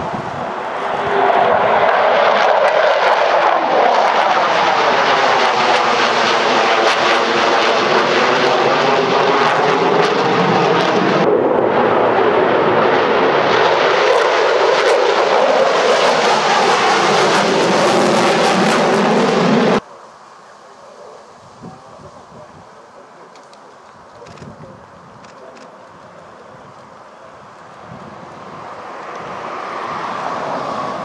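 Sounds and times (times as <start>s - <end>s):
jet flying past: 0.0s - 21.4s, 25.4s - 31.0s
sweeping phasing whoosh: 28.1s - 31.0s.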